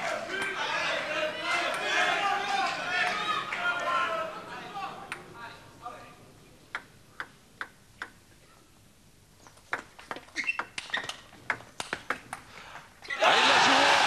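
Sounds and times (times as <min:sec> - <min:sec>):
table tennis ball clicking: 0:06.7 - 0:08.2, 0:09.4 - 0:12.4.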